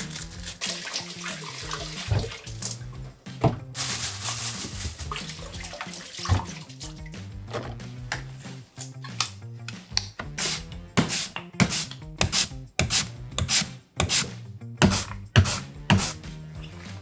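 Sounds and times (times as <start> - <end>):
background music: 0.0 - 17.0
potato scraping on mandoline slicer: 10.4 - 16.2.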